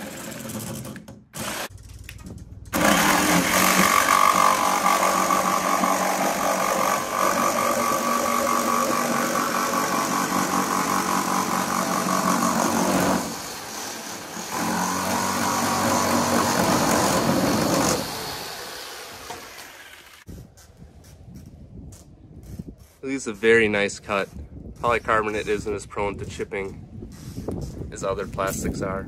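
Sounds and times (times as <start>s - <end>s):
jigsaw cutting plastic sheet: 0.0s - 1.7s, 2.8s - 13.6s, 14.2s - 18.4s.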